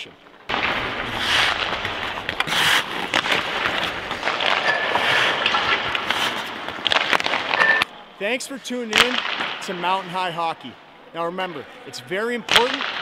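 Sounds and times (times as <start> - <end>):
skate blades scraping ice: 0.5 - 7.8.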